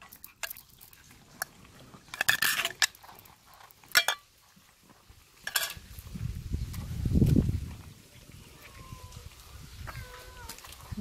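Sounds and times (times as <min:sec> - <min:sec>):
cats eating kibble from plastic plate: 0:00.0 - 0:05.4.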